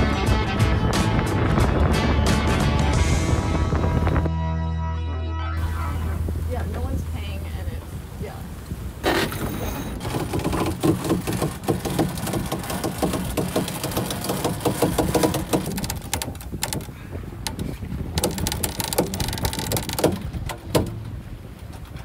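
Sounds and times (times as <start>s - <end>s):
wind and water rushing: 0.0s - 4.4s, 5.6s - 22.0s
winch pawls clicking: 10.0s - 22.0s.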